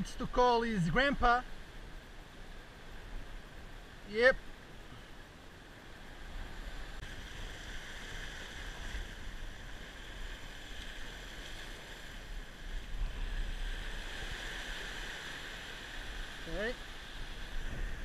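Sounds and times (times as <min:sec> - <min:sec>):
sea surf breaking over rocks: 0:06.2 - 0:18.0
wind buffeting microphone: 0:17.0 - 0:18.0.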